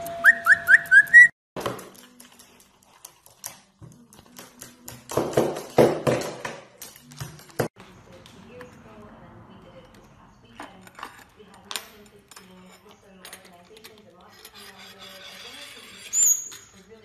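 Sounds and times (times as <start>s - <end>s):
parrot whistling rising notes: 0.2s - 1.3s.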